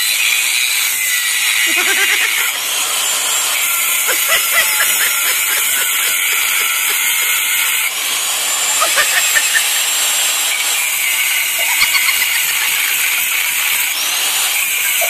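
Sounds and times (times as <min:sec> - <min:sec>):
arc welding hissing sizzle: 0:00.0 - 0:15.0.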